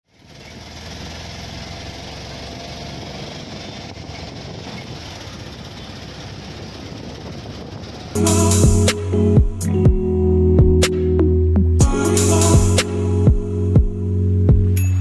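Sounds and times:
road noise: 0.0s - 15.0s
small engine running: 0.1s - 8.4s.

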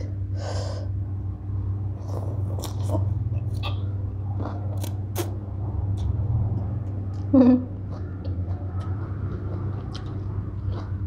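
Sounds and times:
person chewing crunchy food: 2.0s - 6.2s, 6.9s - 11.0s.

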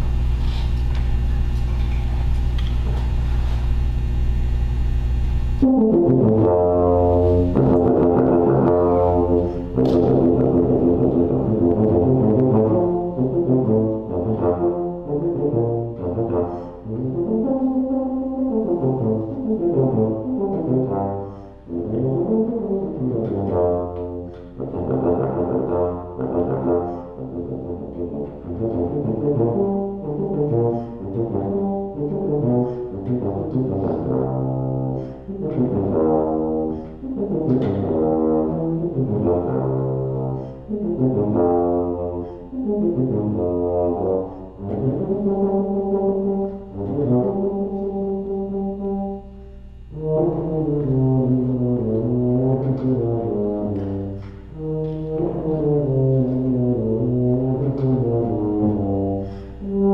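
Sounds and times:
solo tuba melody: 0.0s - 59.9s.

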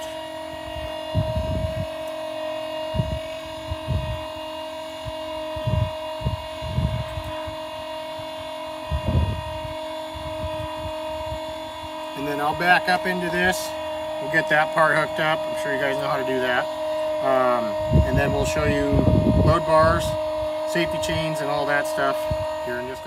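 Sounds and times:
electric jack motor whining: 0.0s - 23.0s.

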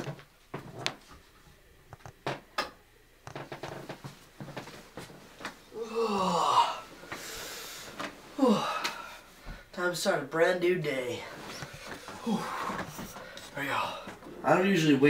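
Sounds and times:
bedding rustling: 3.4s - 5.7s, 10.6s - 15.0s
man yawning: 5.7s - 6.9s, 8.4s - 9.2s, 12.2s - 13.0s.

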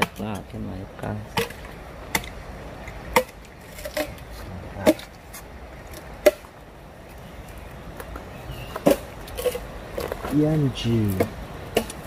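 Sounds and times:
blade chopping wood: 11.1s - 12.0s.

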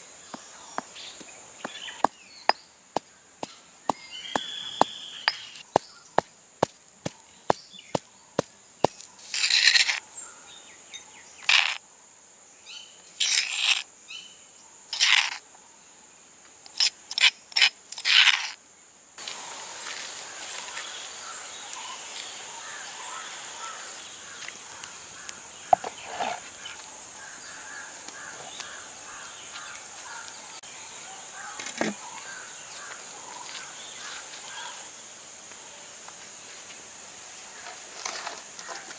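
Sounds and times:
insects humming and buzzing: 0.0s - 38.9s
faint chirps: 3.5s - 6.2s
pestle scraping bursts: 7.9s - 10.0s, 11.4s - 11.8s, 14.9s - 15.4s, 25.7s - 26.5s.

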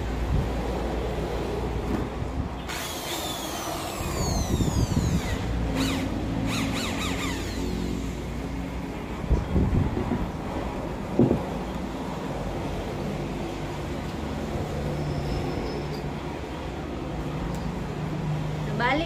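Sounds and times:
electric drill whirring: 2.6s - 8.3s.

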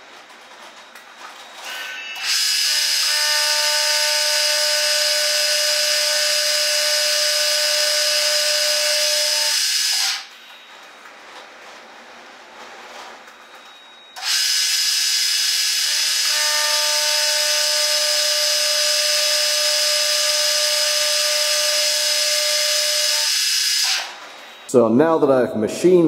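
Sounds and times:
milling machine cutting steel: 1.6s - 10.3s, 14.2s - 24.8s.

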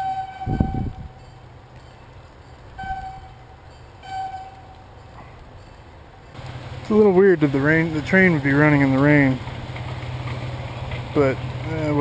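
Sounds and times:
train horn blasts: 0.0s - 1.2s, 2.8s - 4.8s
passing train rumble: 0.0s - 12.0s.

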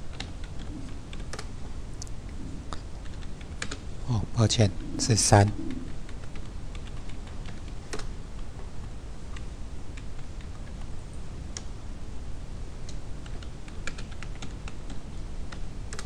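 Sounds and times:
steady low background noise: 0.0s - 16.0s
computer keyboard keystrokes: 0.1s - 1.5s, 3.0s - 3.8s, 6.1s - 8.5s, 12.8s - 16.0s.

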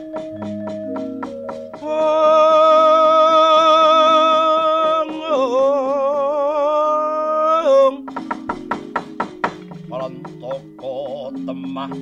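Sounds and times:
light regular beat: 0.0s - 12.0s
struck metallophone tones: 0.0s - 12.0s
person singing long note: 1.8s - 8.1s.

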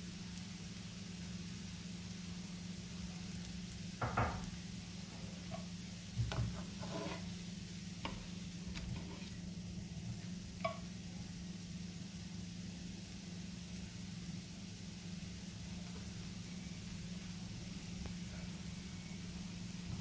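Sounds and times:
crepe sizzling in a pan: 0.0s - 20.0s
spatula knocking and scraping pan: 5.4s - 7.3s, 8.0s - 9.4s, 10.6s - 10.9s.

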